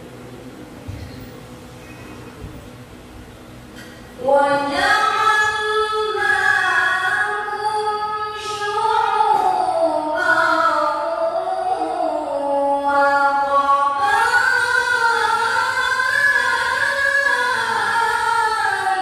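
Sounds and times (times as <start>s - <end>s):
woman reciting melodically: 4.0s - 19.0s.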